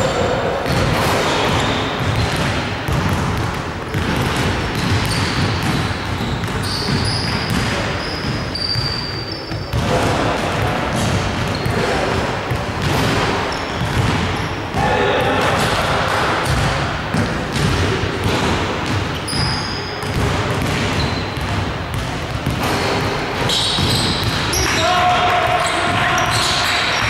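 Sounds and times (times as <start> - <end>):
players' voices echoing: 0.0 - 27.0
basketball bouncing: 0.6 - 24.8
short high shoe squeaks: 4.8 - 5.4, 6.0 - 9.7, 13.5 - 14.6, 19.2 - 20.1, 21.0 - 21.4, 23.4 - 24.7.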